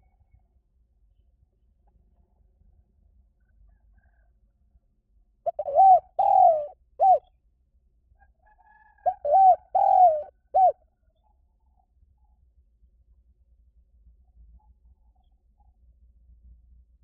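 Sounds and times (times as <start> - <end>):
dove cooing: 5.5 - 7.2, 9.0 - 10.8.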